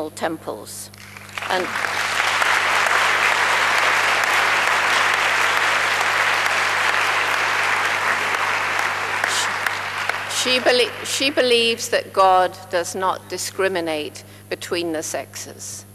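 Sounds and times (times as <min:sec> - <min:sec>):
audience applauding: 0:01.0 - 0:11.8.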